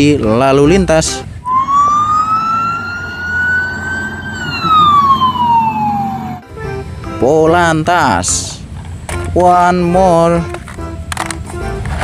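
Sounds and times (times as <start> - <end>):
police siren wailing: 1.4 - 6.4.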